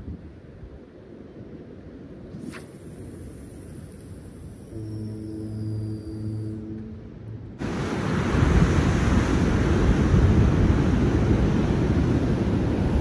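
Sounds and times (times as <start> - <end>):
wind buffeting microphone: 7.2 - 13.0
ocean surf breaking on rocks: 7.6 - 13.0.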